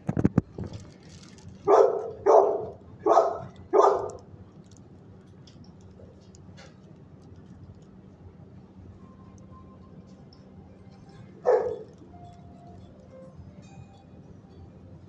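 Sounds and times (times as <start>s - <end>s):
dog barking: 1.7s - 4.2s, 11.4s - 12.0s.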